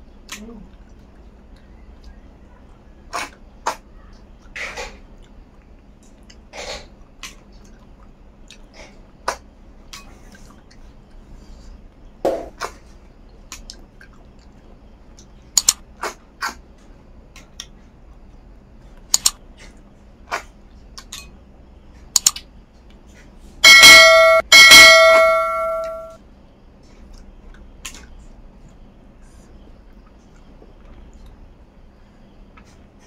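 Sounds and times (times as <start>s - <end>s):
chewing mouth clicks: 13.5s - 15.4s
steel plate struck ringing: 23.6s - 26.2s.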